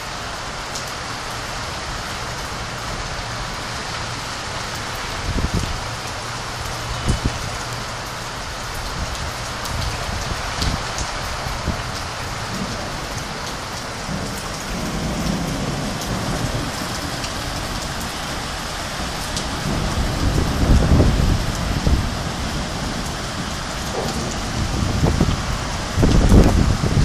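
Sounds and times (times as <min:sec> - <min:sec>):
heavy rain pouring: 0:00.0 - 0:27.0
thunder rumbling: 0:09.8 - 0:27.0.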